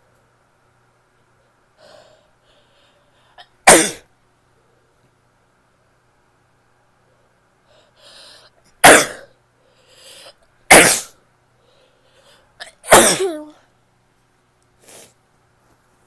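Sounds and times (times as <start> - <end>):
breathy inhale: 1.8 - 3.4, 7.6 - 8.6, 9.6 - 10.4, 11.6 - 12.5
woman sneezing: 10.7 - 11.2, 12.6 - 13.6.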